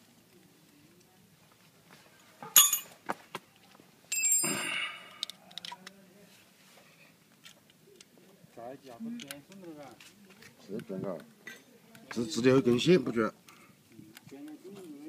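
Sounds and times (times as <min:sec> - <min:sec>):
metal clinking: 0:02.5 - 0:03.0, 0:04.1 - 0:05.7.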